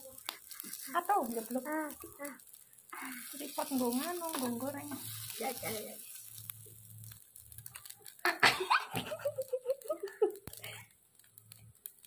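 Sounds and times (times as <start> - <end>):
person giggling: 8.2 - 10.6.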